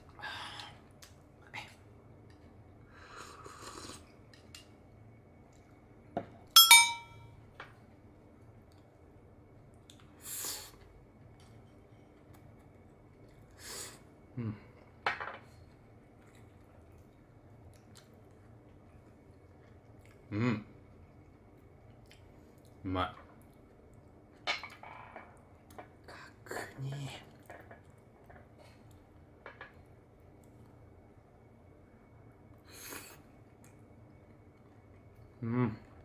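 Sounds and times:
crockery clinking: 0:06.6 - 0:07.2.

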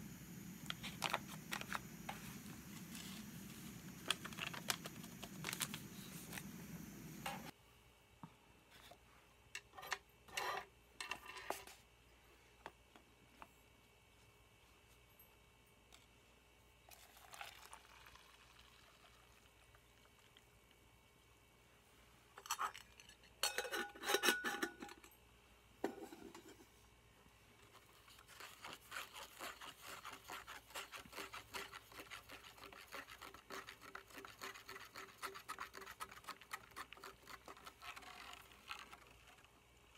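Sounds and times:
stirring in a cup: 0:00.5 - 0:06.6, 0:16.9 - 0:20.5, 0:27.6 - 0:39.9
metal cup and lid clanking: 0:22.4 - 0:25.1.

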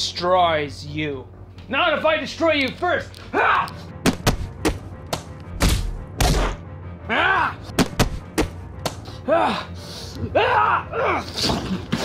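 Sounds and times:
cartoon hits and thuds: 0:04.0 - 0:06.6, 0:07.8 - 0:08.6.

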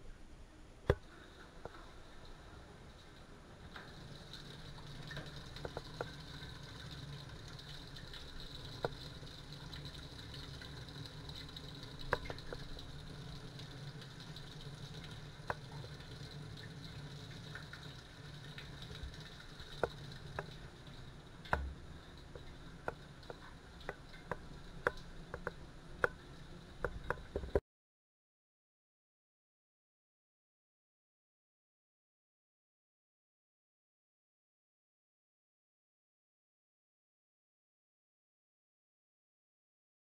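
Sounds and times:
low mechanical hum: 0:00.0 - 0:27.6.

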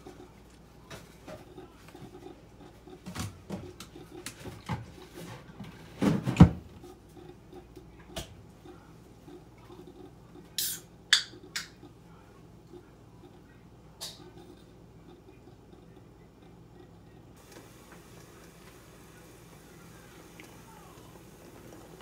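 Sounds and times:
kitchen knocks and clatter: 0:03.0 - 0:06.9.

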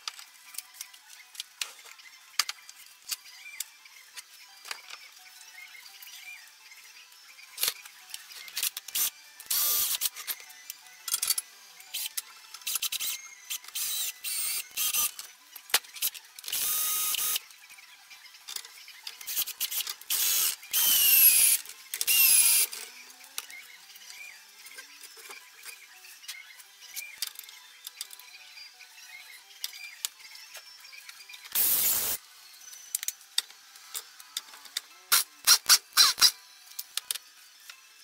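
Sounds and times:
power tool motor bursts: 0:09.0 - 0:10.0, 0:12.7 - 0:15.1, 0:16.5 - 0:17.4, 0:20.1 - 0:22.7, 0:31.6 - 0:32.2, 0:35.1 - 0:36.4.

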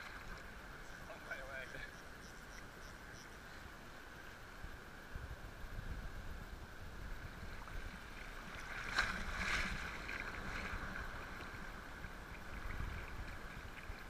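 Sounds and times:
wind rumbling on microphone: 0:01.6 - 0:14.0
water sloshing around legs: 0:07.7 - 0:11.6.

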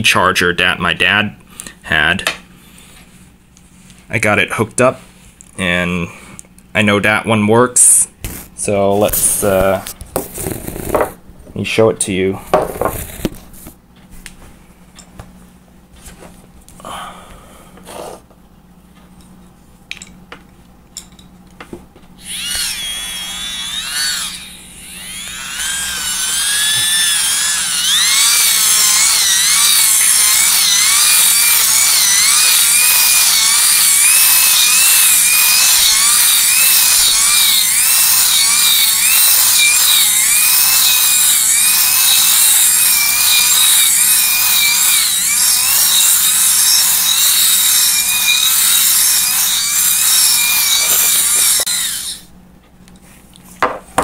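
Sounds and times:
hand-cranked motor gearing whining: 0:22.2 - 0:52.2.

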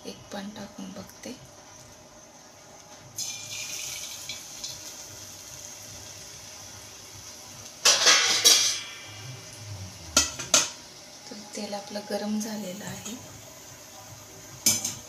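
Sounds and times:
battered food sizzling in hot oil: 0:00.3 - 0:15.0
loud burst of noise: 0:08.3 - 0:11.2.

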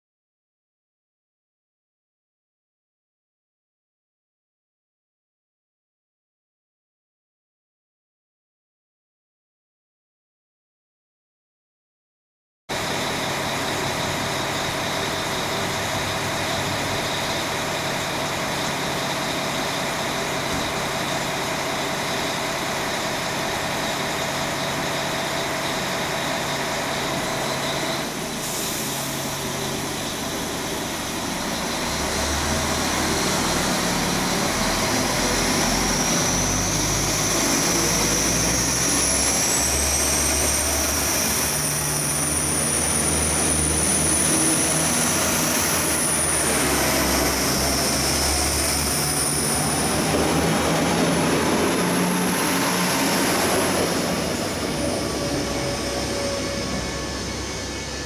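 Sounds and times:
deep rumble of moving train: 0:12.7 - 0:58.0
diesel train idling: 0:12.7 - 0:58.0
rising train whine: 0:12.7 - 0:58.0.

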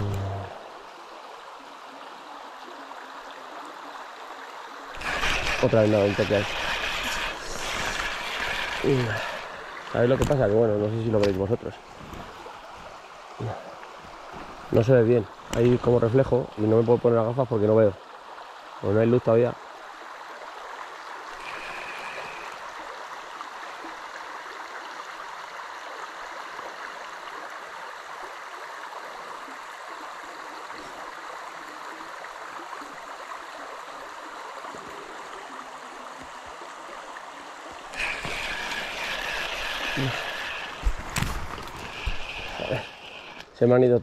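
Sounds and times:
river water rushing: 0:00.0 - 0:19.0, 0:19.6 - 0:43.9
thin high whine: 0:37.9 - 0:43.6.

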